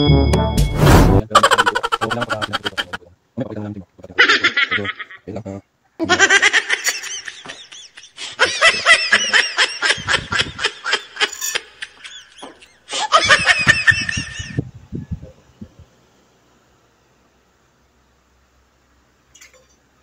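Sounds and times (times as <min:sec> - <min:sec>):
high-pitched laughter: 0:01.3 - 0:03.0, 0:04.2 - 0:05.2, 0:06.0 - 0:14.6.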